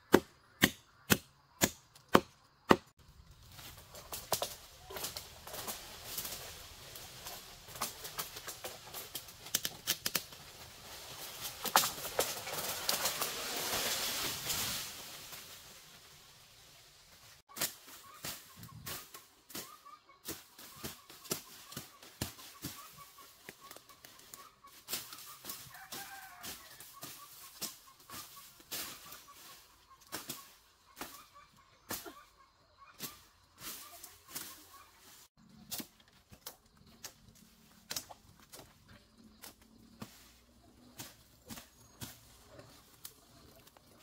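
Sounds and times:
blade chopping tree trunk: 0.0s - 2.9s
trunk knocking in undergrowth: 3.5s - 15.5s.

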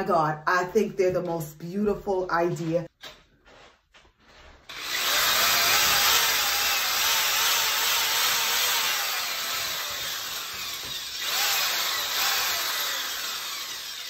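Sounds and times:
electric drill boring into brick: 4.7s - 14.0s.

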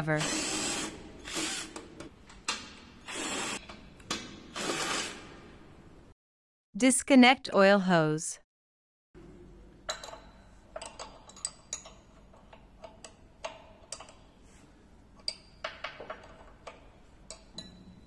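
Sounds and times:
wrench and metal fitting clinking: 9.9s - 14.2s, 15.2s - 18.0s.

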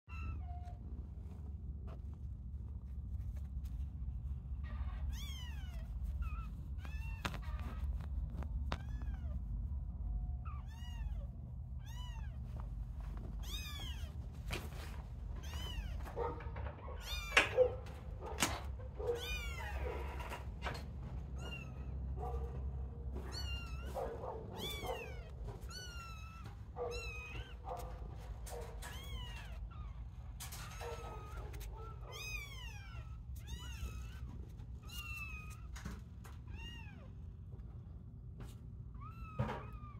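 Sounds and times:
steady low hum: 0.1s - 39.1s
kittens mewing: 4.6s - 35.8s.

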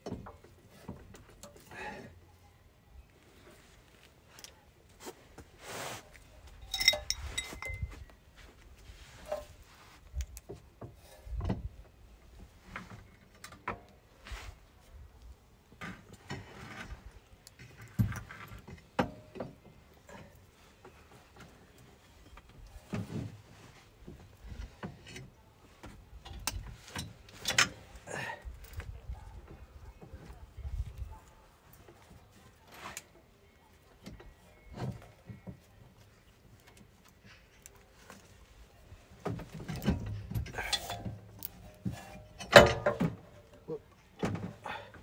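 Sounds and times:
metal parts clinking and clanking: 6.6s - 7.9s, 39.6s - 43.2s
short metallic ring: 6.6s - 7.9s.

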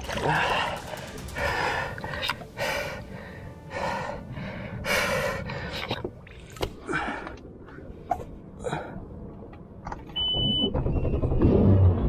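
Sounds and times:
heavy breathing: 0.0s - 8.0s.

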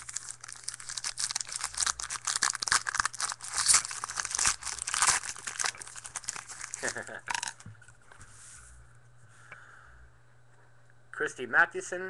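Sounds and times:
wrapper tearing and crinkling: 0.0s - 7.6s.

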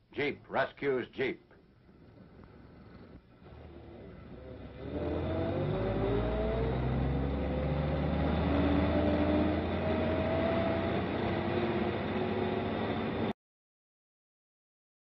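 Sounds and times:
jeep engine running under load: 2.0s - 13.3s.

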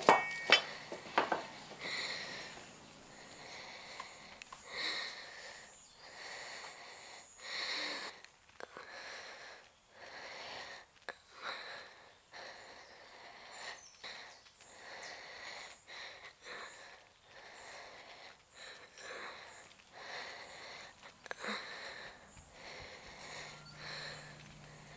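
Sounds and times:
woman breathing heavily: 0.1s - 24.9s
high insect trill: 22.1s - 24.9s.

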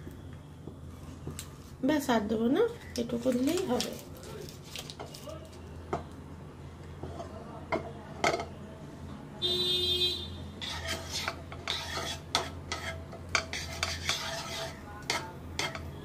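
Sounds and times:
wooden spatula scraping frying pan: 7.0s - 7.5s, 10.6s - 16.0s.

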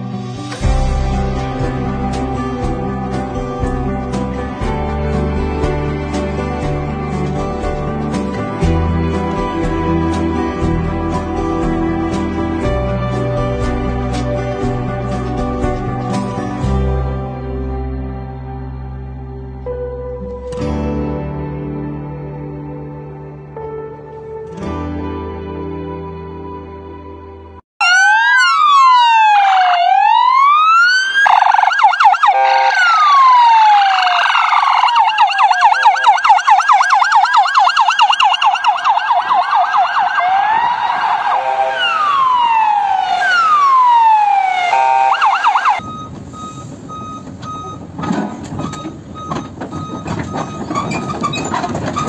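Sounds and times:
vehicle sirens wailing and yelping: 27.8s - 52.0s
engine rumble: 40.5s - 52.0s.

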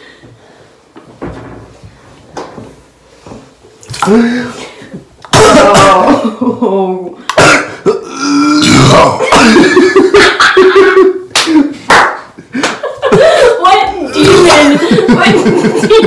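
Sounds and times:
man burping: 4.0s - 6.4s, 7.3s - 9.8s
man coughing: 5.3s - 6.4s, 7.3s - 10.0s.

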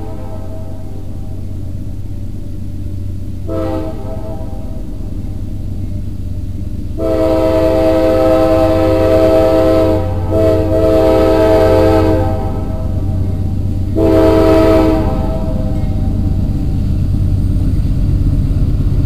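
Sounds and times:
locomotive air horn blasts: 0.0s - 1.3s, 3.4s - 4.9s, 7.0s - 16.4s
train rumbling: 0.0s - 19.0s.

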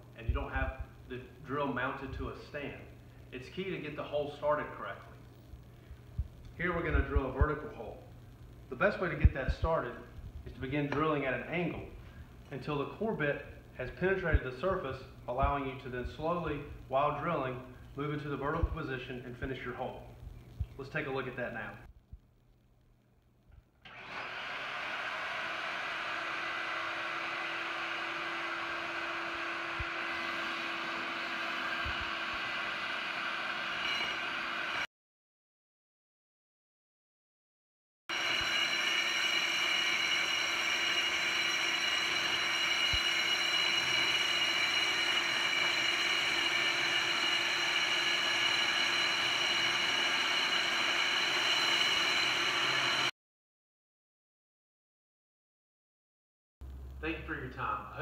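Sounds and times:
core drill boring: 23.8s - 34.9s, 38.1s - 53.1s
dust extractor running: 23.9s - 34.9s, 38.1s - 53.1s.

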